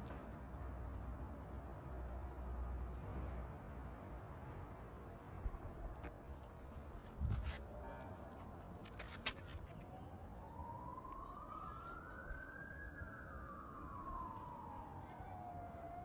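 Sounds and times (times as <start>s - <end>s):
faint siren wailing: 9.6s - 16.0s.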